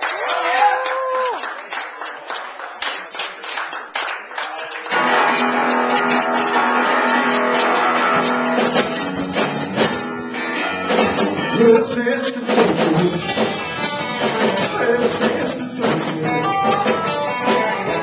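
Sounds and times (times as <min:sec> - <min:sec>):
rock band playing: 0:04.9 - 0:18.0.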